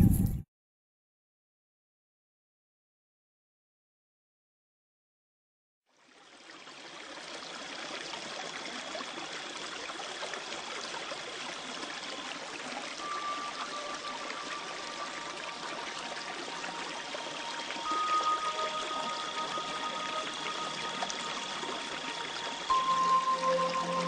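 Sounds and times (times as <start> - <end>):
running water: 5.9 - 24.0
long held music tones: 13.0 - 24.0.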